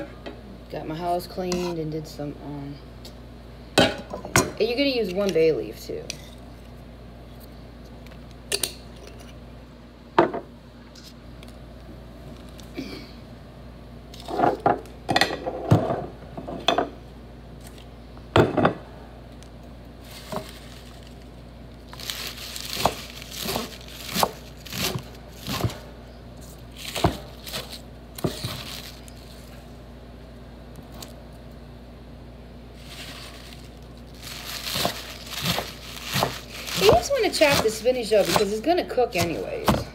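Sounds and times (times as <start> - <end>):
leaves rustling: 20.0 - 25.7, 26.4 - 29.7, 32.7 - 39.2.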